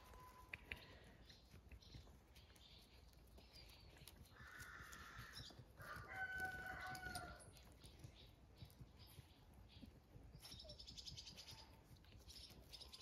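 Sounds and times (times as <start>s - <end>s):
rooster crowing: 5.8s - 7.5s.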